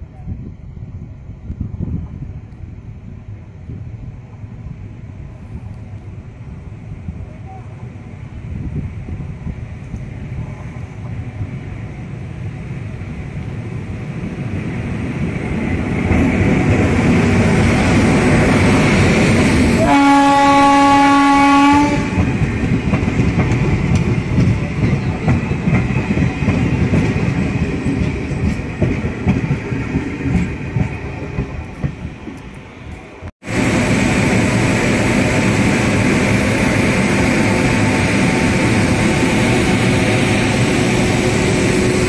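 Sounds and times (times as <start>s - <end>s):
train wheels rumbling and clattering: 0.3s - 42.0s
train horn blast: 19.8s - 22.3s.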